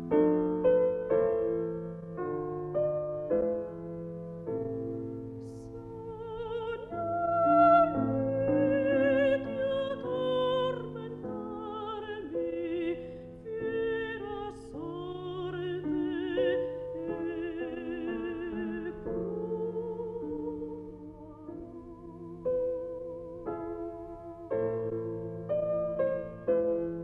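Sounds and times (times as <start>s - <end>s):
piano accompaniment: 0.0s - 27.0s
woman singing opera: 4.8s - 23.0s.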